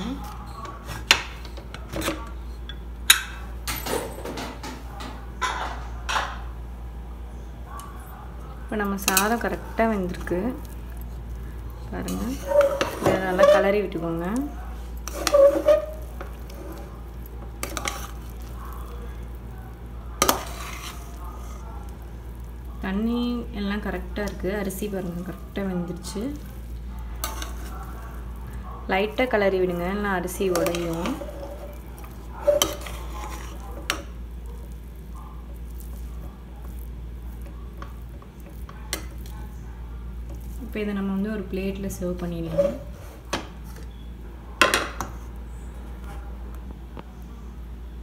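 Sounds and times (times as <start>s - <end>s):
spoon mixing cooked rice: 8.8s - 44.0s
ladle scraping rice: 12.1s - 13.8s, 14.9s - 17.0s, 17.6s - 18.8s, 20.2s - 21.6s, 26.4s - 28.3s, 30.3s - 34.8s.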